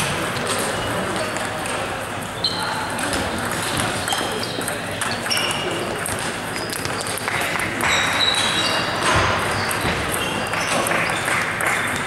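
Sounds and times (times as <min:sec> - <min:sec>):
table tennis balls clicking: 0:03.0 - 0:12.0.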